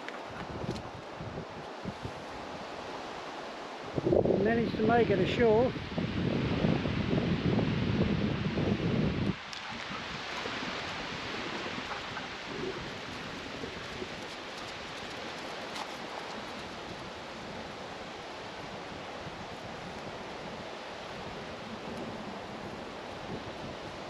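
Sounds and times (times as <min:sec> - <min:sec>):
surf: 0:00.0 - 0:24.0
wind: 0:00.0 - 0:24.0.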